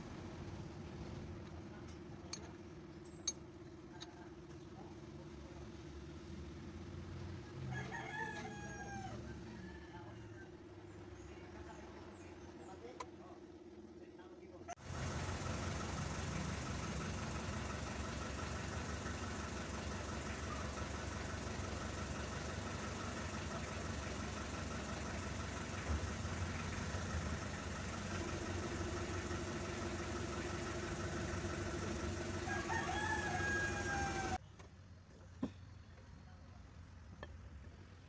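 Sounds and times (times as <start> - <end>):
rooster crowing: 7.4 - 10.6, 32.2 - 34.4.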